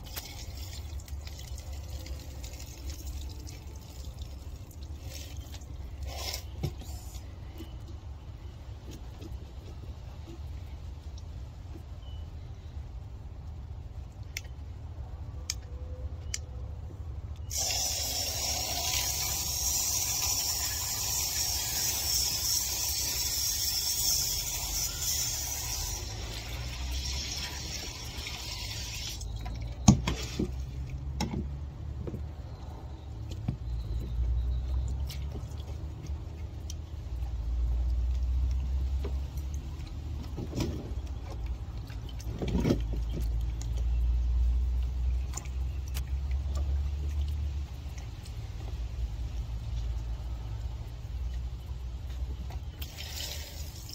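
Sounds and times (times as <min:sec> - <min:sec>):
hose spraying water into container: 0:00.0 - 0:07.3, 0:17.5 - 0:31.0, 0:52.6 - 0:53.9.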